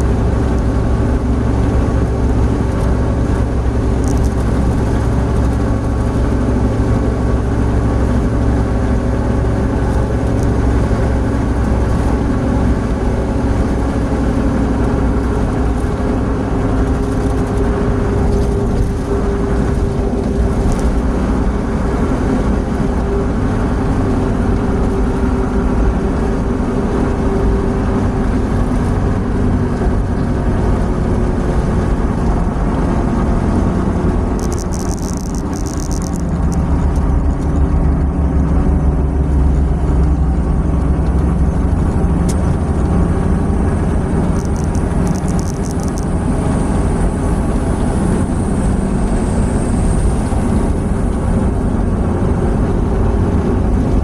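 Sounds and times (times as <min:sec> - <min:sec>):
car cabin road drone: 0:00.0 - 0:54.0.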